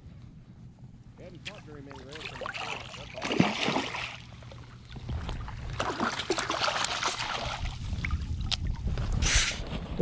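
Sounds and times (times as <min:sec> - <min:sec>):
water sloshing: 0:01.4 - 0:09.2
fish thrashing and splashing: 0:02.2 - 0:04.4, 0:05.4 - 0:08.6.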